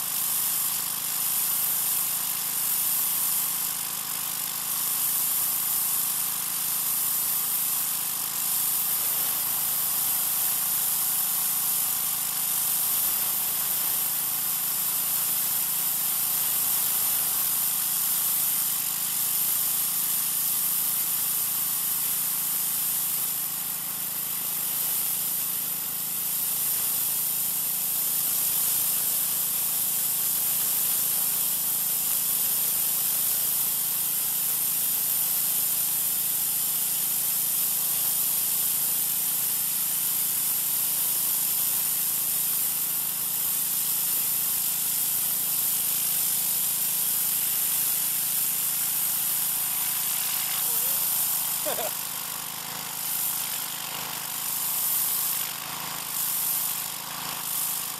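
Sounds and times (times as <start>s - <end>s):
pressure washer water jet hissing: 0.0s - 57.9s
pressure washer hum: 48.8s - 53.8s.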